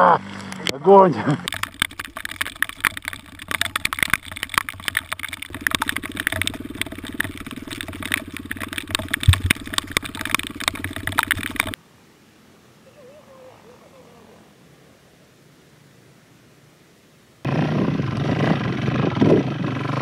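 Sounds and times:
motorcycle engine running: 0:04.2 - 0:11.8, 0:17.5 - 0:20.0.

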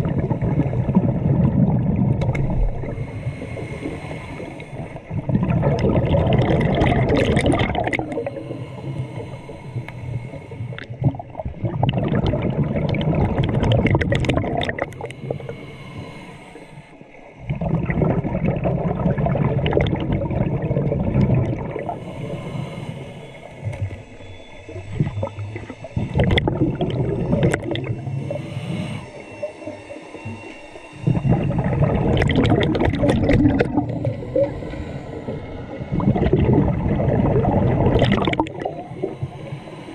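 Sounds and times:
diver exhaling bubbles underwater: 0:00.0 - 0:09.0, 0:10.7 - 0:15.4, 0:17.4 - 0:22.0, 0:24.7 - 0:30.4, 0:31.0 - 0:39.9.

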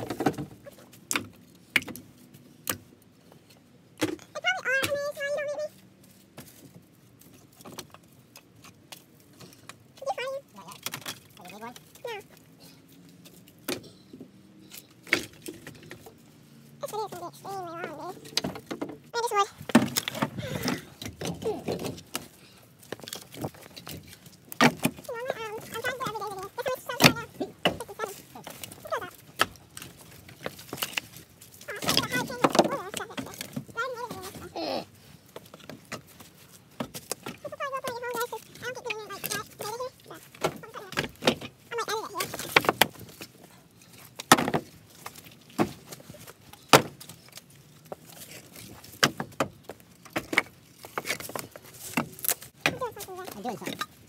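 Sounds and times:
firewood pieces knocking: 0:00.0 - 0:02.8, 0:10.8 - 0:12.4, 0:17.8 - 0:34.6, 0:35.3 - 0:54.0
wooden boards knocking: 0:44.3 - 0:44.7.

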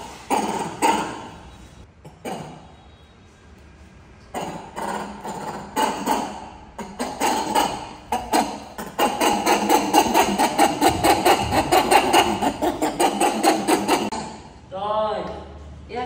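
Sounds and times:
baby monkey crying: 0:04.3 - 0:14.4.

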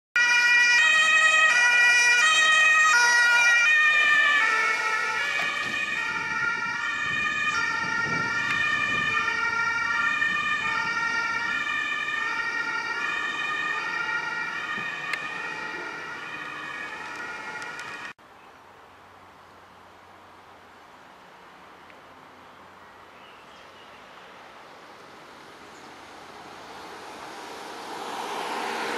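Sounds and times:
ambulance two-tone siren: 0:00.2 - 0:18.2.

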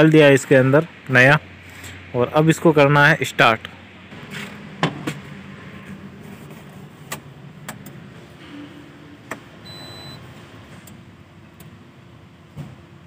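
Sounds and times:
dashboard beep: 0:09.6 - 0:10.2.

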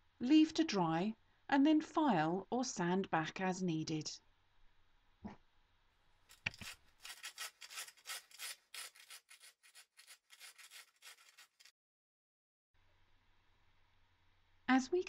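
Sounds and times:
hand sanding strokes: 0:06.5 - 0:11.7.

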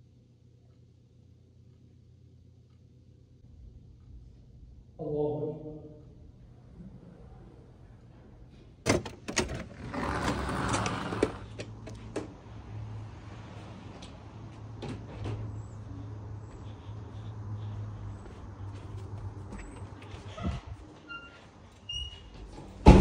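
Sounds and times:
low steady hum: 0:00.0 - 0:08.9
door opening with clicks: 0:08.8 - 0:12.3.

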